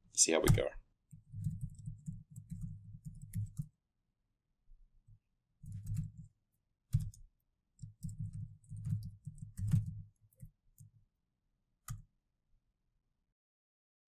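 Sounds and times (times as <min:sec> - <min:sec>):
typing on laptop keyboard: 0:00.5 - 0:03.7, 0:05.6 - 0:06.3, 0:06.9 - 0:10.5.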